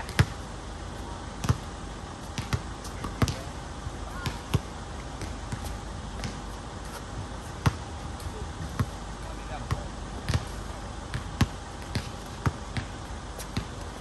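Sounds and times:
basketball bouncing on hard court: 0:00.0 - 0:00.4, 0:01.4 - 0:01.7, 0:02.4 - 0:03.4, 0:04.2 - 0:06.4, 0:07.6 - 0:07.9, 0:08.6 - 0:09.0, 0:09.6 - 0:13.8.

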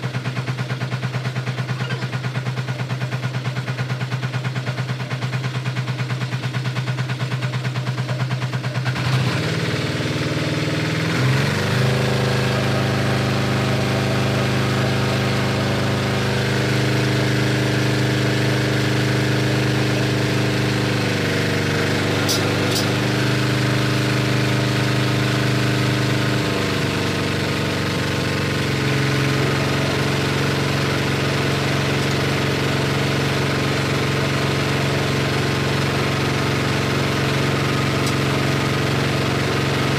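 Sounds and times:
meat grinder motor humming: 0:10.5 - 0:39.9.

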